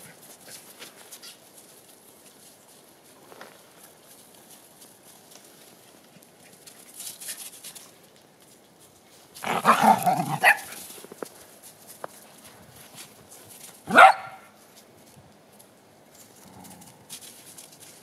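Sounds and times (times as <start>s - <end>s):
dog barking: 9.6s - 10.7s, 13.9s - 14.5s.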